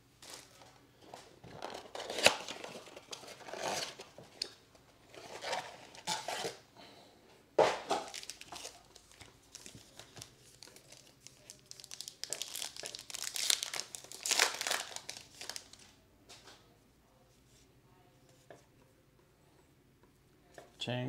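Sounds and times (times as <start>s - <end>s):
foil wrappers crinkling and tearing: 1.5s - 4.0s, 8.0s - 15.9s.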